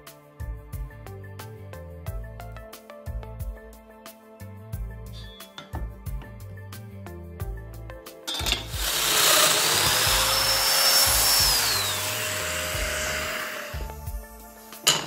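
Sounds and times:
power joiner motor whine: 0:08.3 - 0:15.0.

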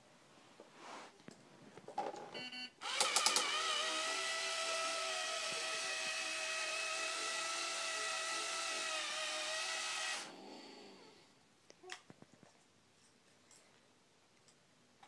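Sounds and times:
toy clicks: 0:02.8 - 0:04.3
small electric motor whining: 0:02.8 - 0:10.3.

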